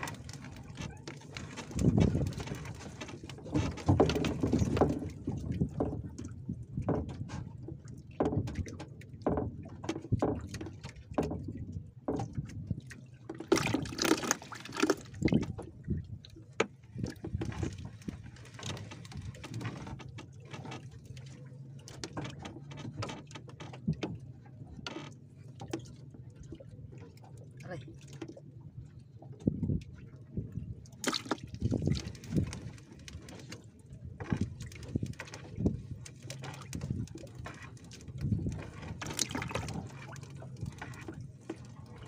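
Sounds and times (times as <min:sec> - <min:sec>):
knocks in boat: 0:00.0 - 0:12.6, 0:13.4 - 0:15.7, 0:22.0 - 0:24.3
water splashing and dripping: 0:00.0 - 0:24.2, 0:29.3 - 0:42.0.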